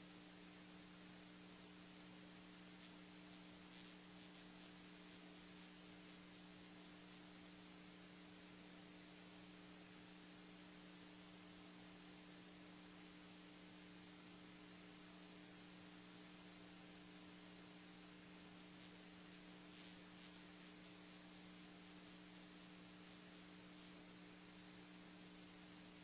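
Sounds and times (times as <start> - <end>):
faint electrical hum: 0.0 - 26.0
low hiss: 0.0 - 26.0.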